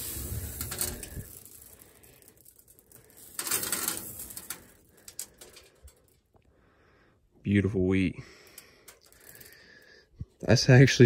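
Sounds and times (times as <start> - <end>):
grain pouring: 0.0 - 5.9
kernels falling clicks: 0.0 - 6.4, 8.5 - 9.6.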